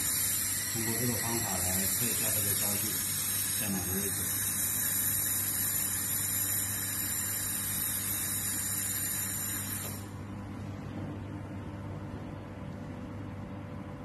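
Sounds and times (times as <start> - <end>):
laser welding gun hiss: 0.0 - 10.1
steady low hum: 0.0 - 14.0.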